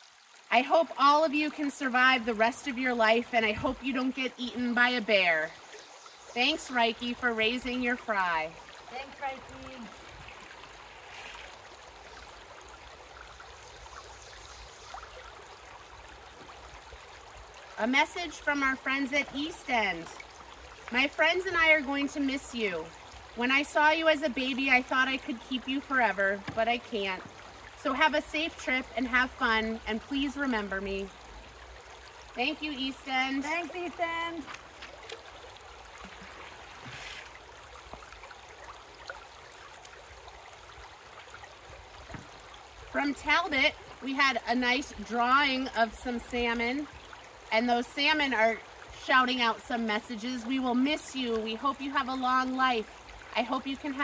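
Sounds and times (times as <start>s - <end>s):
river running over rocks: 6.4s - 54.0s
river burbling over rocks: 7.6s - 13.6s
water poured splashing: 10.2s - 12.2s, 33.3s - 40.6s.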